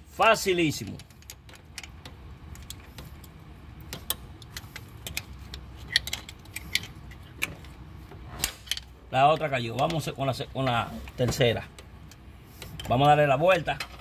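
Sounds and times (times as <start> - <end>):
metal parts clicking and clinking: 0.8 - 7.8.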